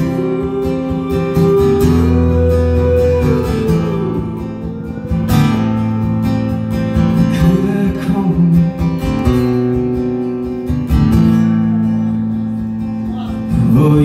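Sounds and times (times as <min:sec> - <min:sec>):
man singing: 0:00.0 - 0:05.8, 0:07.1 - 0:09.0, 0:13.0 - 0:14.0
acoustic guitar strumming: 0:00.0 - 0:14.0.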